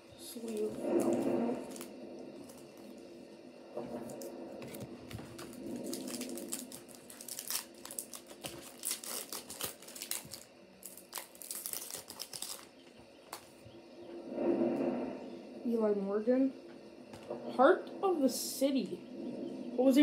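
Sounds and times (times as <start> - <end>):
foil wrapper tearing and crinkling: 5.8 - 12.8.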